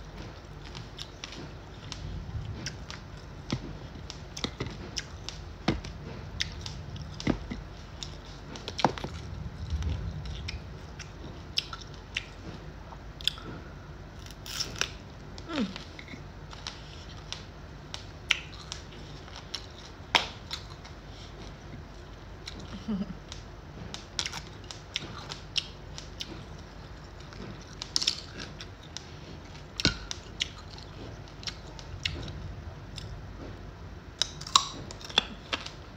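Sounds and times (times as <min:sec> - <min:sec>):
crunching raw vegetables: 0:00.0 - 0:17.5.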